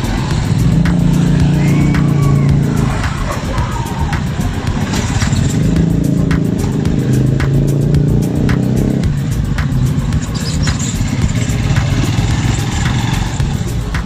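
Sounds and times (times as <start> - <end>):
motor scooters running: 0.0 - 14.0
music with faint beat: 0.0 - 14.0.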